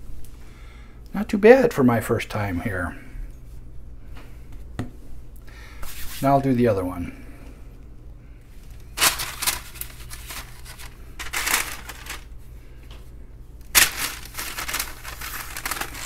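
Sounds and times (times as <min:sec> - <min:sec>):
parchment paper crinkling: 0:08.8 - 0:12.3, 0:13.7 - 0:16.0.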